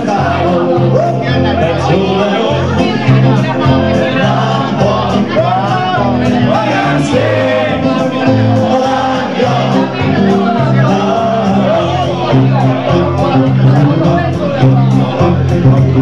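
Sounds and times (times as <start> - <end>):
bass line: 0.0 - 16.0
live band music: 0.0 - 16.0.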